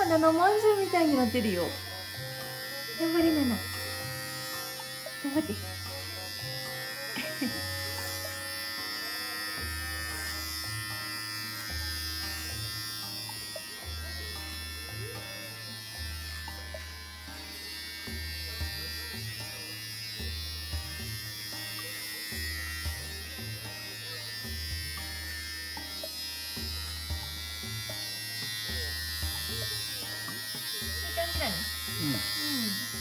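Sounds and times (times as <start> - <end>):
electric clippers buzzing: 0.0 - 33.0.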